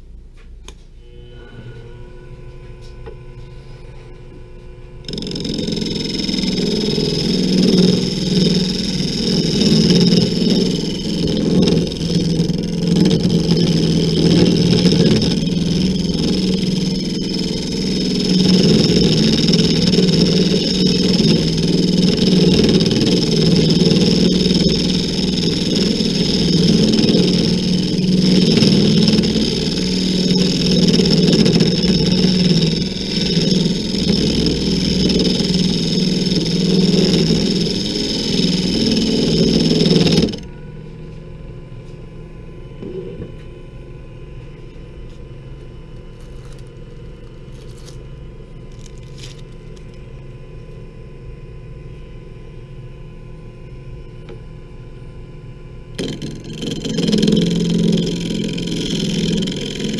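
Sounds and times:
lathe running hum: 0:01.0 - 0:50.2, 0:55.9 - 0:59.9
rasp scraping spinning wood: 0:05.1 - 0:40.5, 0:56.0 - 0:59.9.

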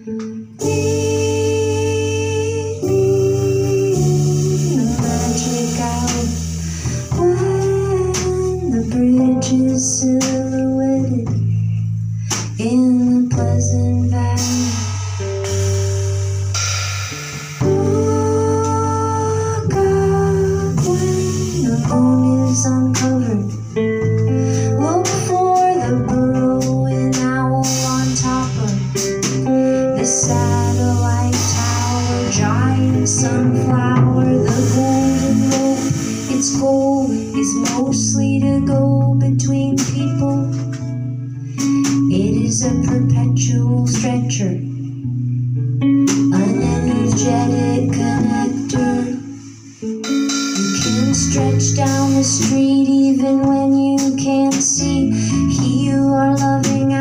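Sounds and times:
woman singing: 0:00.0 - 0:15.0, 0:17.6 - 0:44.9, 0:46.1 - 0:49.9, 0:50.6 - 0:57.0
drums: 0:00.0 - 0:57.0
low held bass line: 0:00.0 - 0:57.0
strummed guitar: 0:19.6 - 0:57.0
ringing cymbals: 0:49.3 - 0:51.4.

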